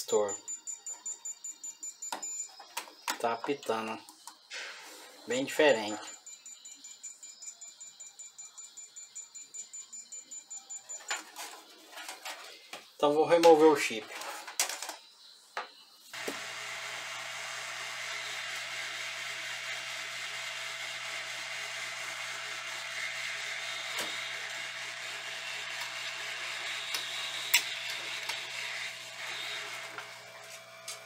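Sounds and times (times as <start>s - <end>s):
hot air blower hissing: 16.2s - 31.0s.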